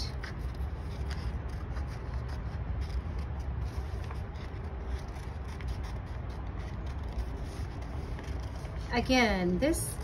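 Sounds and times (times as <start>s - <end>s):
paper rustling: 0.0s - 9.1s
scissors snipping paper: 0.0s - 9.1s
steady low hum: 0.0s - 10.0s.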